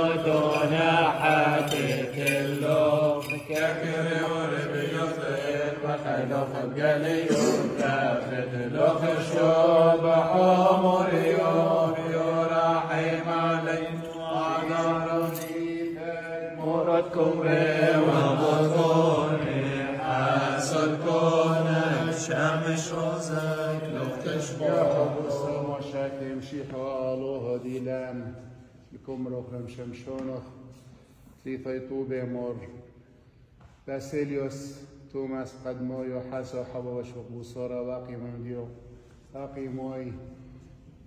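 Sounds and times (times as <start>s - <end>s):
men chanting a hymn: 0.0s - 30.5s.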